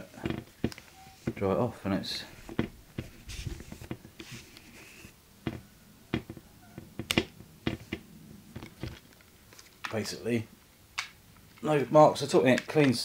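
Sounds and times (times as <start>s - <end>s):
cloth rubbing lens: 0.0s - 1.5s, 2.2s - 9.1s
sharp clicks and taps: 5.5s - 8.0s.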